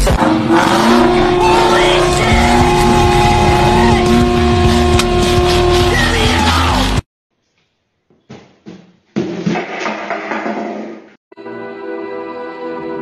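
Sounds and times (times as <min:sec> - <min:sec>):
car engine revving high: 0:00.0 - 0:07.0.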